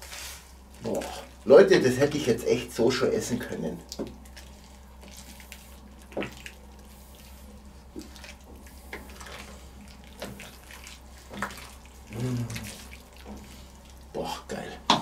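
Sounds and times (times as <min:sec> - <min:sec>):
stew sloshing and bubbling: 0:00.0 - 0:15.0.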